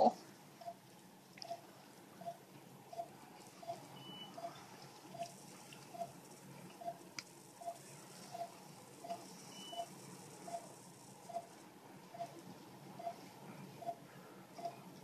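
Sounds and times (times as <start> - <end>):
monitor short beeps: 2.2 - 4.5, 9.1 - 9.9.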